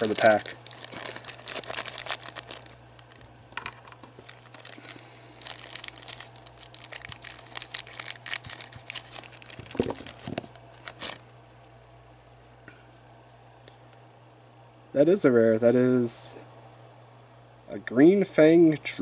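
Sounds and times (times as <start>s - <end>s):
plastic bag crinkling: 0.0s - 11.2s
low electrical hum: 0.0s - 19.0s.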